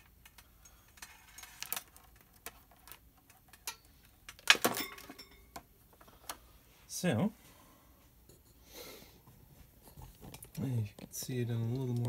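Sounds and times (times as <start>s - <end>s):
cables and electronics box clicking: 1.5s - 4.6s.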